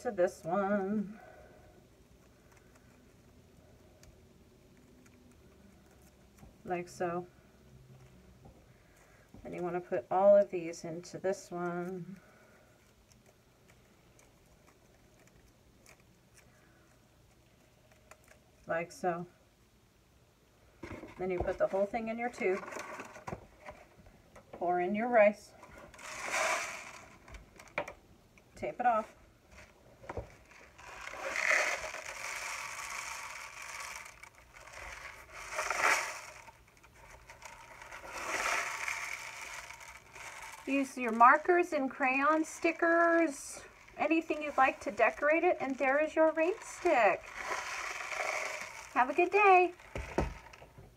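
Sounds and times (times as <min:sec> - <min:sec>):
aluminum foil crinkling: 0:29.5 - 0:50.7
rice pattering in rain stick: 0:30.4 - 0:50.6.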